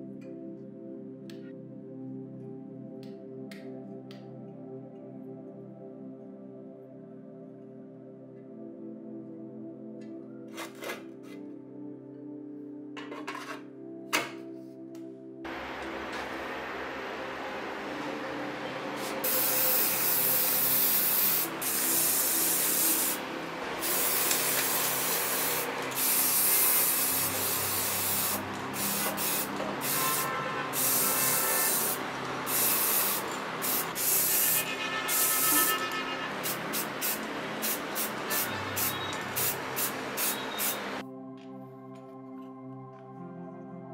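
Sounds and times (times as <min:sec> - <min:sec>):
spray paint hissing: 0:19.0 - 0:41.0.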